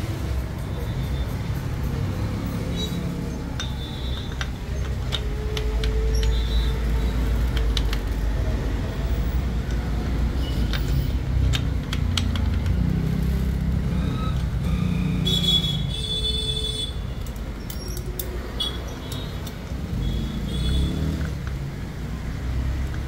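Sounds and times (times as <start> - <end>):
traffic rumble: 0.0 - 23.0
metallic clicks of clutch plates: 0.4 - 12.9, 17.1 - 21.9.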